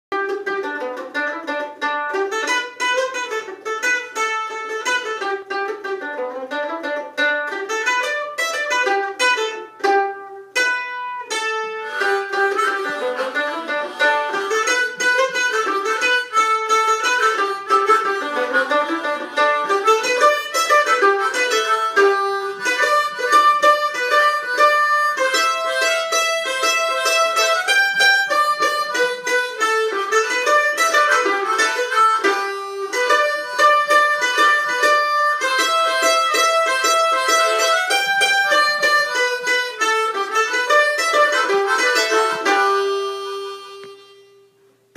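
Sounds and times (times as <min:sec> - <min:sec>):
small string instrument strummed: 0:00.1 - 0:44.9
harmonica holding sustained notes: 0:10.9 - 0:44.6.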